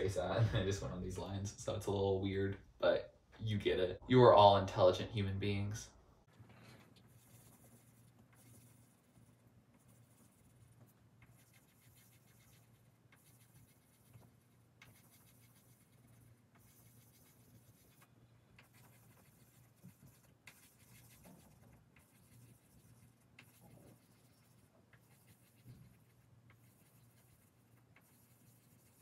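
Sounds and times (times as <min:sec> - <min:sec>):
pencil scratching on paper: 0:06.7 - 0:29.0.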